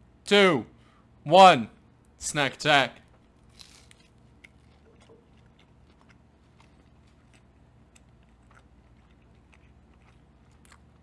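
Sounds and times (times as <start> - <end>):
low steady hum: 0.0 - 11.0
faint chewing crunches: 3.0 - 11.0.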